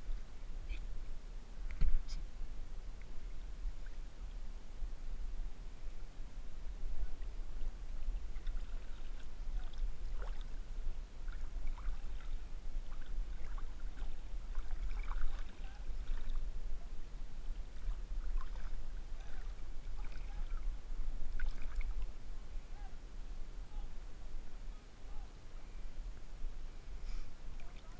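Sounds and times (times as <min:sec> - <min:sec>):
steady low rumble: 0:00.0 - 0:27.9
water lapping and splashing: 0:07.0 - 0:22.2, 0:27.5 - 0:27.9
water plops and drips: 0:21.4 - 0:21.9.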